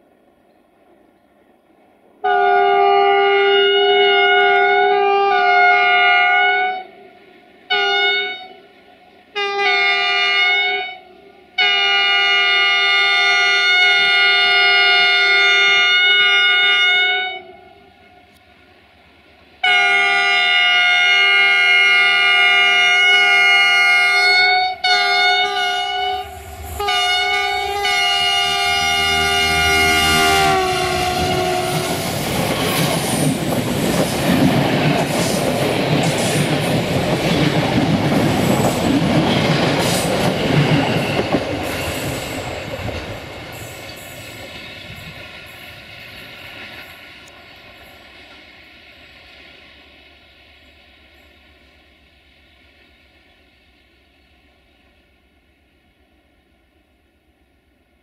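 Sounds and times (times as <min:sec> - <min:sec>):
train rumbling past: 0:00.0 - 0:58.0
locomotive horn blasts: 0:02.2 - 0:07.0, 0:07.7 - 0:08.6, 0:09.4 - 0:17.9, 0:19.6 - 0:32.0.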